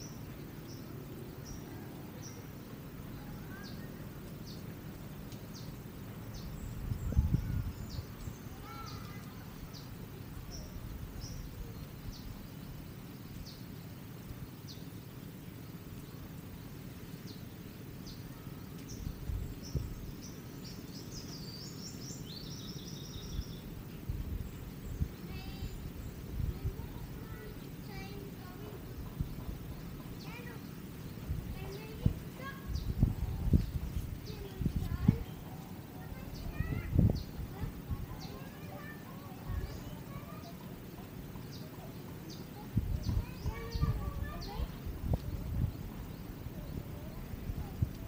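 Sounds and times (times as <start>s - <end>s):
small birds chirping: 0.0s - 48.0s
wind rushing: 31.2s - 35.4s, 36.1s - 38.1s.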